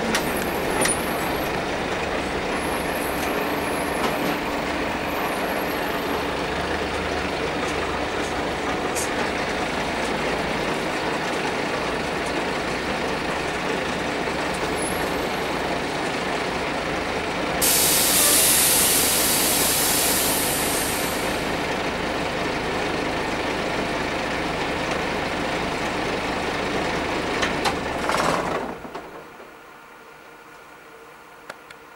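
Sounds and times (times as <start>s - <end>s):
bus diesel engine idling: 0.0s - 31.4s
air brake hiss: 17.6s - 21.5s.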